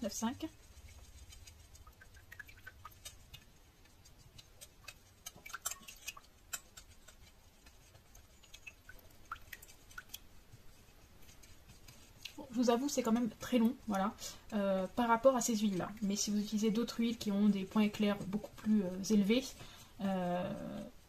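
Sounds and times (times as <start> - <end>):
utensil clicking against metal bowl: 4.4 - 7.2.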